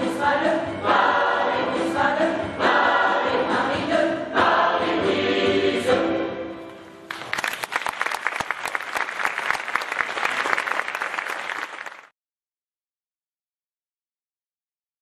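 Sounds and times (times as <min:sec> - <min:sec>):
audience applauding: 0:07.1 - 0:12.1.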